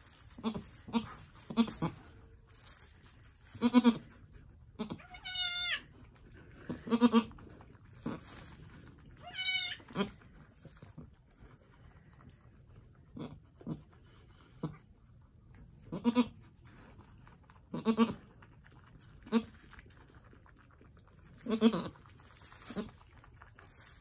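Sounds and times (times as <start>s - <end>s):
kid higher-pitched bleats: 4.8s - 5.9s, 9.2s - 10.2s.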